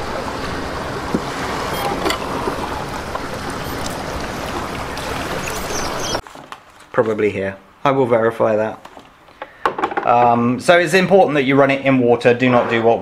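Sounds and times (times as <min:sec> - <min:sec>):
water rushing: 0:00.0 - 0:06.2.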